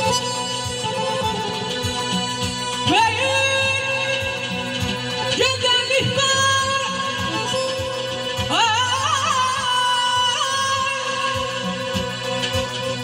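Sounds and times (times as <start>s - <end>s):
accordion: 0.0s - 13.0s
man singing through loudspeakers: 2.8s - 12.8s.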